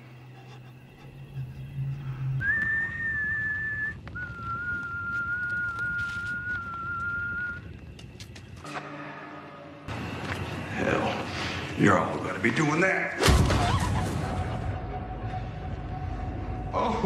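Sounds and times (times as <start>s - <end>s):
person whistling long notes: 2.0s - 7.7s.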